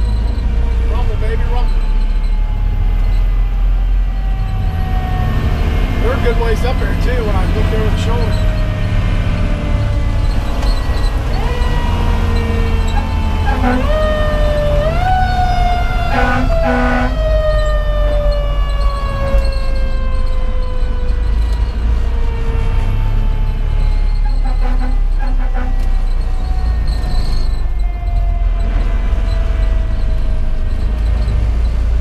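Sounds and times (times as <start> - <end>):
diesel engine: 0.0 - 32.0
mechanical siren wailing: 0.0 - 32.0
road noise: 0.0 - 32.0
air horn blasts: 11.4 - 17.4, 24.3 - 26.2.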